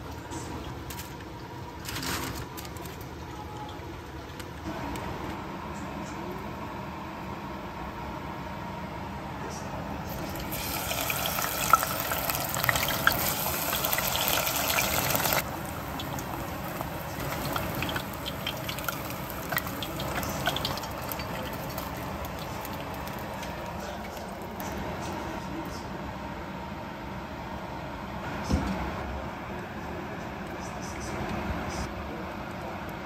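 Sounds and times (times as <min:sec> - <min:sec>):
food deep-frying in oil: 0:10.1 - 0:24.6
oil popping and crackling: 0:10.1 - 0:24.6.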